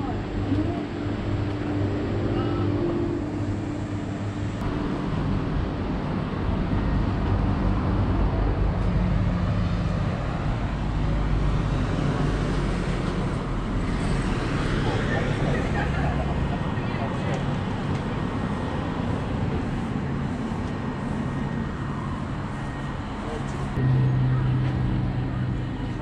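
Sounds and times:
passing vehicles rumble: 0.0 - 26.0.

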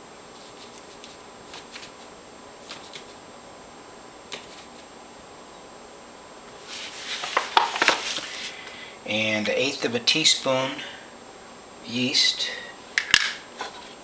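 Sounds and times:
faint steady hiss: 0.0 - 14.0
paper bag rustling: 6.6 - 8.6.

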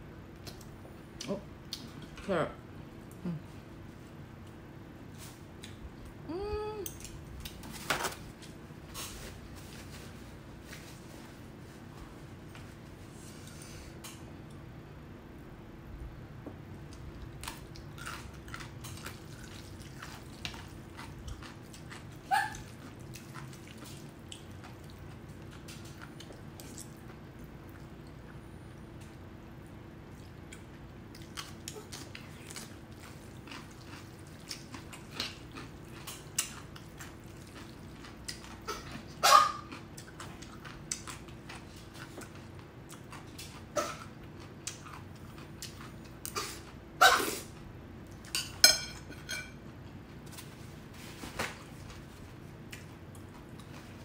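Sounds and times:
small dog barking: 22.3 - 22.7, 39.2 - 39.7
noodles slurped and chewed: 30.0 - 43.6.

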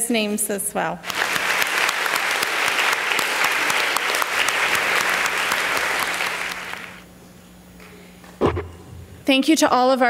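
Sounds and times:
children applauding: 1.0 - 7.0.

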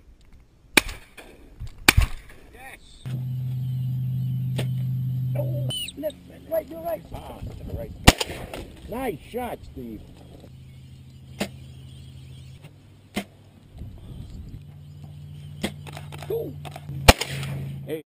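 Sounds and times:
steady low hum: 3.0 - 18.0
shotgun shots: 8.0 - 8.7, 15.6 - 17.8.

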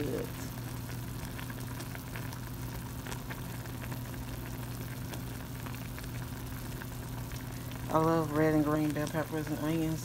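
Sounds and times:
food simmering in a skillet: 0.0 - 10.0
steady low hum: 0.0 - 10.0
pops and crackles: 0.8 - 7.4.

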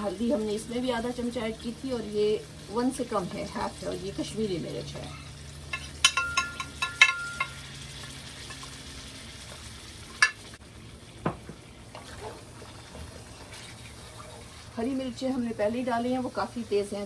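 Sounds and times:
chicken sizzling in oil: 0.0 - 17.0
metal spoon clinking: 5.7 - 7.6.

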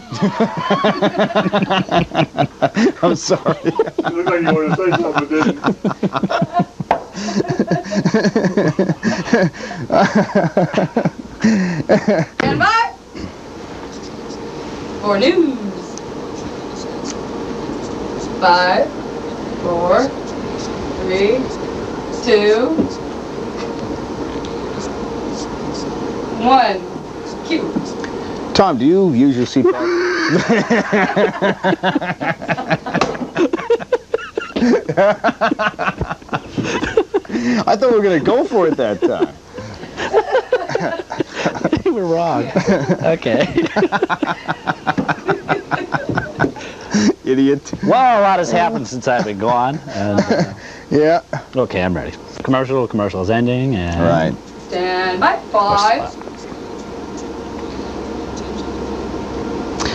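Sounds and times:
men laughing: 0.0 - 13.4, 28.8 - 51.6.

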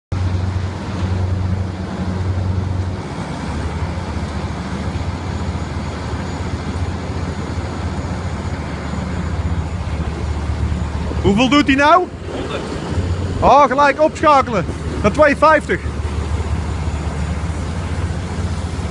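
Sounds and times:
diesel generator droning: 0.1 - 18.9.

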